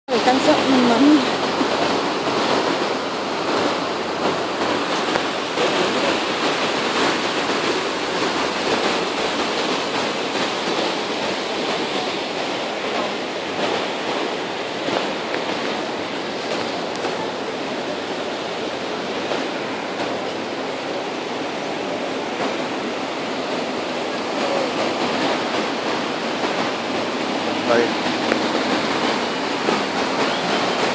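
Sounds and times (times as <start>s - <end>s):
river rushing over boulders: 0.1s - 30.9s.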